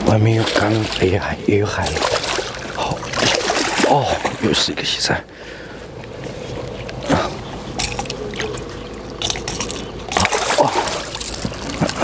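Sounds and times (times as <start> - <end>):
water splashing and trickling: 0.0 - 5.6, 6.7 - 12.0.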